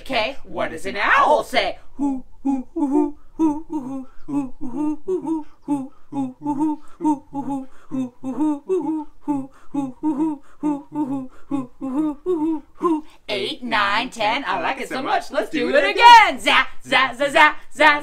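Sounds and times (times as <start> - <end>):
people singing owl hoots: 1.9 - 13.2.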